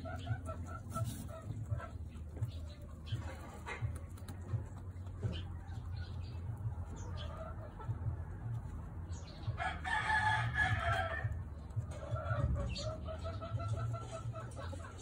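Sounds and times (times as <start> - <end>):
chicken clucking: 0.0 - 15.0
rooster crowing: 9.6 - 11.4.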